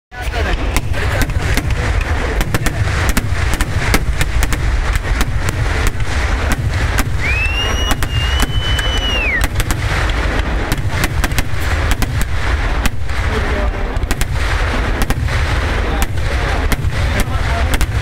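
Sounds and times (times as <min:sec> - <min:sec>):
fireworks bangs: 0:00.1 - 0:18.0
high firework whistle: 0:07.0 - 0:09.8.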